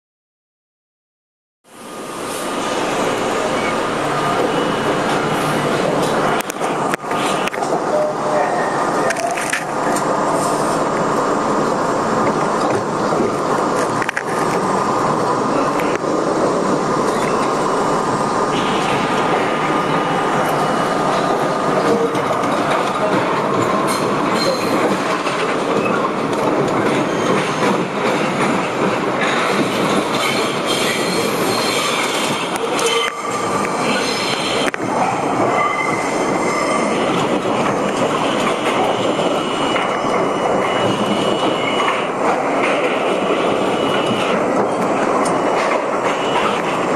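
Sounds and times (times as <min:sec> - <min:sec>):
subway train rumble and rattle: 0:01.7 - 0:46.9
wheel squeals: 0:23.9 - 0:24.8.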